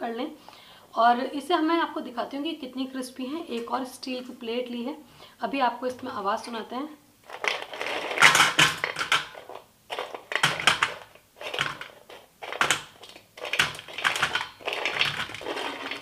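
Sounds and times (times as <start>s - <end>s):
brittle pieces clattering on steel plate: 7.3s - 16.0s.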